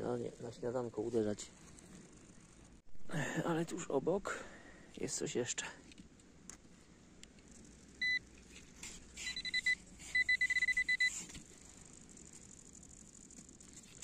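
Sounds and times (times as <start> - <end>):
metal detector pinpointer beeping: 8.0 - 8.2, 9.2 - 11.3.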